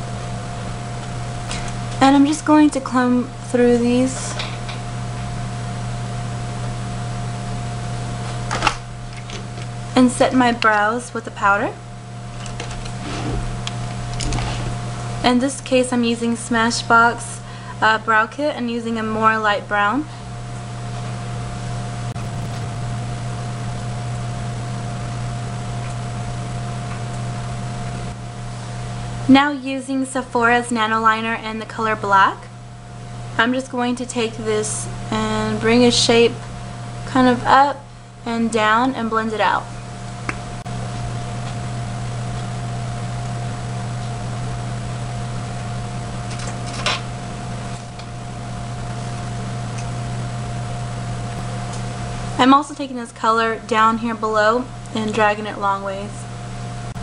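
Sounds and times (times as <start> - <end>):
low hum with thin higher tone: 21.9 - 57.0
thin whine and hiss: 22.1 - 29.2.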